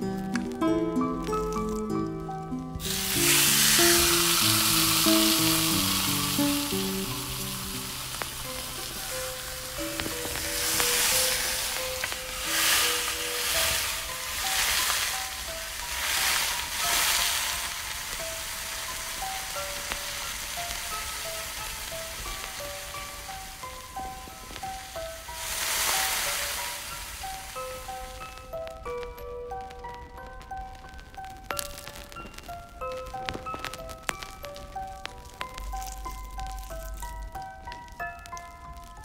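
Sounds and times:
butter sizzling on a griddle: 2.8 - 39.0.

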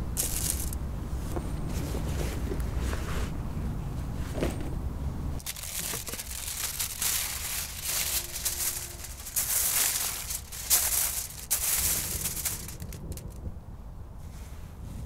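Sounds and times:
aluminium foil crinkling: 0.0 - 0.8, 5.4 - 13.4.

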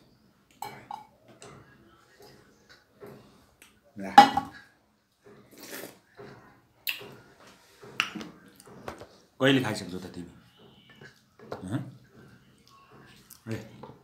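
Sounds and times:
metal dishes clattering: 0.6 - 1.6, 4.0 - 4.7.

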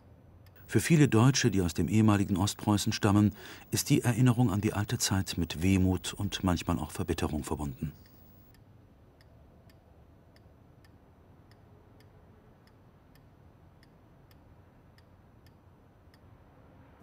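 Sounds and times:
clock ticking: 0.6 - 8.6.

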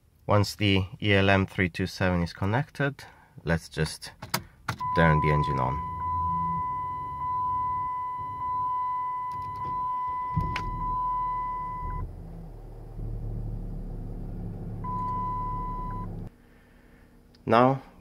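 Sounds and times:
steady high beep: 4.8 - 12.0, 14.8 - 16.1
diesel engine starting and idling: 4.8 - 16.3.

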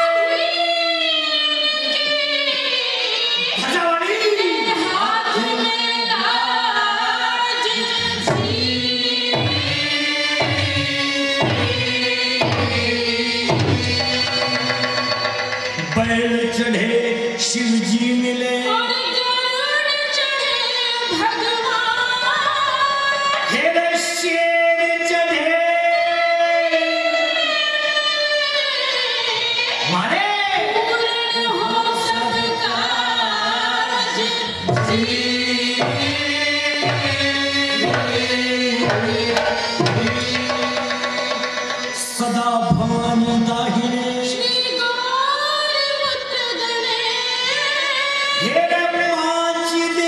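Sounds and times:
drum beats: 7.9 - 17.5, 34.2 - 44.4
voices singing long notes: 25.5 - 48.7
harmonium drone: 30.7 - 45.6.

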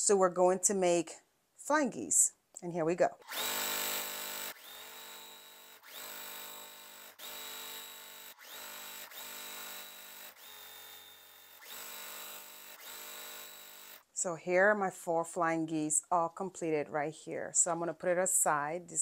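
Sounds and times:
sewing machine stitching: 3.2 - 14.0.

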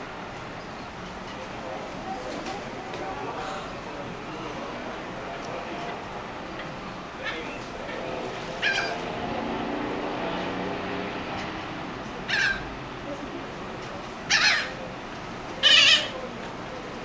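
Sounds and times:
gulls calling: 0.6 - 17.0.

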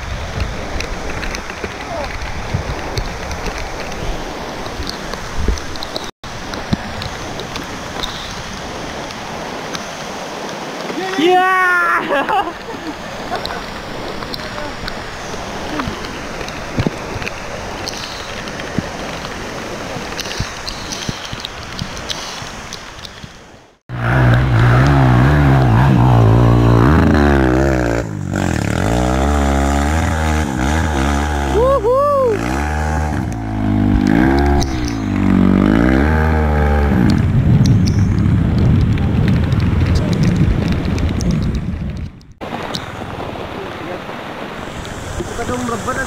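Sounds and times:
rain hiss: 0.0 - 38.2, 42.4 - 46.0
motorcycle engine revving: 23.9 - 39.5.

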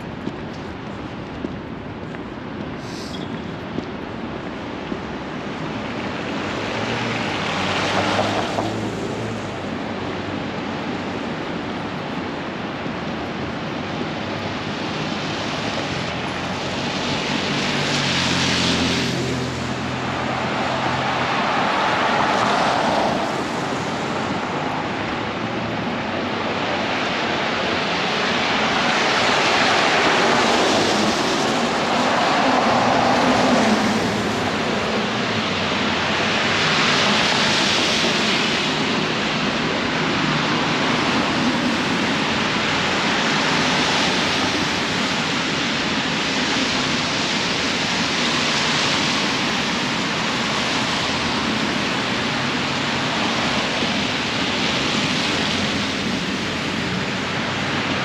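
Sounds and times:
tyres on wet pavement: 0.0 - 58.0.

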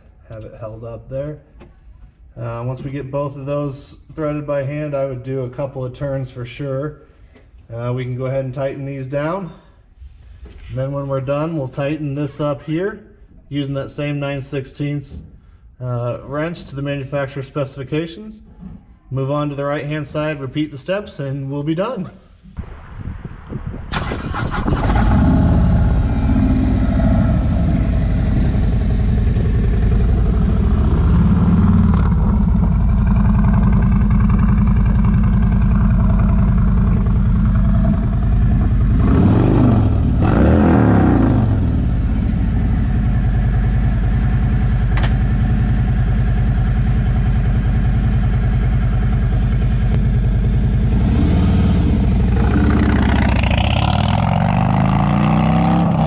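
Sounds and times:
motorcycle engine idling and revving: 24.0 - 56.0.

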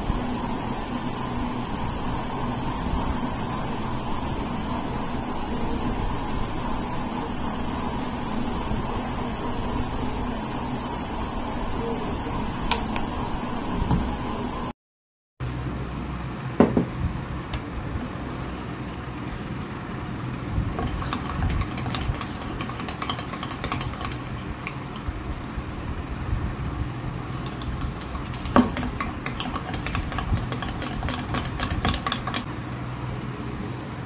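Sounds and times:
spoon beating in metal tumbler: 20.8 - 25.7, 27.2 - 32.5.

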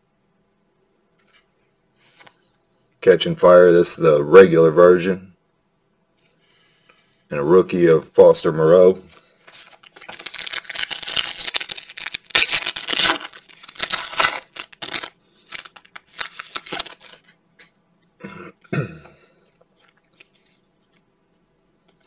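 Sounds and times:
cards rustling: 9.1 - 17.8, 19.7 - 21.1
foil wrapper tearing and crinkling: 9.6 - 17.4.

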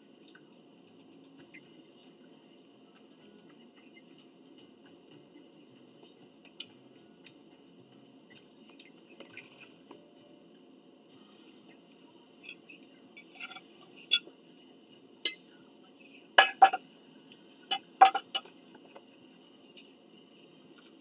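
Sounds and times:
utensil clinking on ceramic plate: 16.4 - 16.8.

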